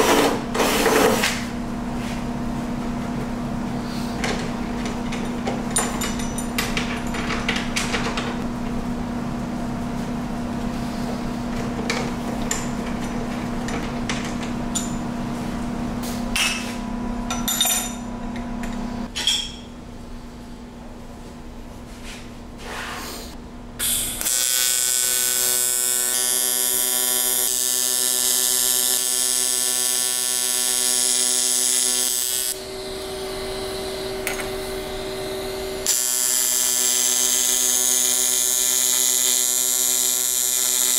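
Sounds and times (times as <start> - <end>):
steady hum: 0.0 - 22.6, 32.5 - 36.2
hand tools clicking and knocking: 4.2 - 8.4, 11.6 - 15.0
welder arc buzzing: 23.8 - 40.9.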